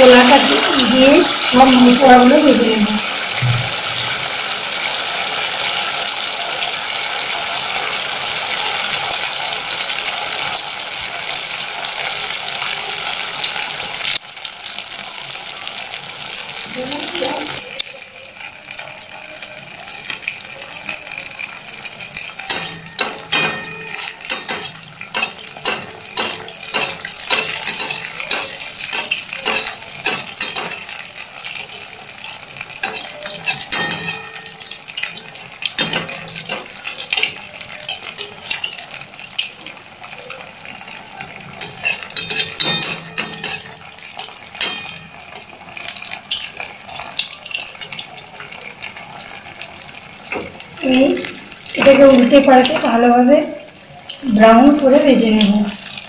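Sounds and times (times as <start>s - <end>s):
batter sizzling in hot oil: 0.0s - 56.0s
metal spoon clinking against pan: 8.2s - 9.8s, 19.9s - 31.7s, 32.3s - 48.1s.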